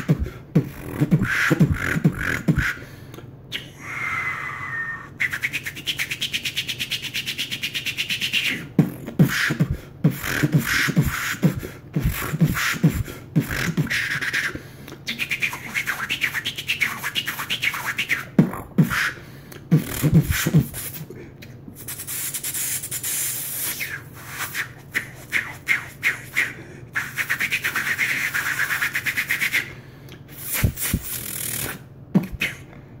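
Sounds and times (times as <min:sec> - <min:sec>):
man beatboxing: 0:00.0 - 0:02.8, 0:04.7 - 0:21.2, 0:21.8 - 0:32.7.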